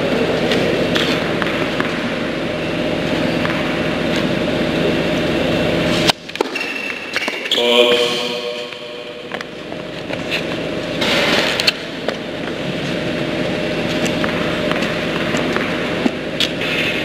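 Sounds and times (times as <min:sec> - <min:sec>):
steady tonal hum: 0:00.0 - 0:17.0
racket hitting ball: 0:00.5 - 0:02.1, 0:03.3 - 0:04.3, 0:14.0 - 0:17.0
tennis ball bouncing: 0:03.4 - 0:04.2.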